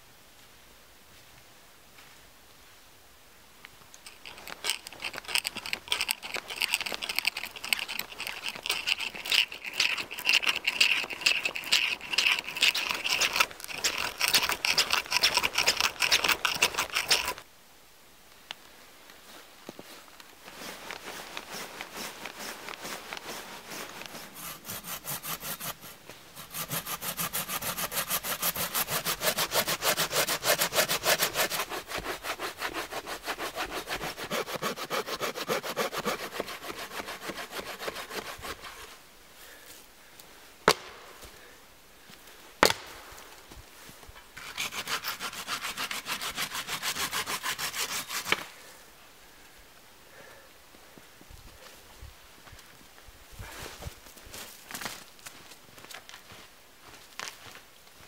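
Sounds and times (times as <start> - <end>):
hand saw cutting log: 4.2 - 17.4, 21.1 - 39.0, 44.4 - 48.6.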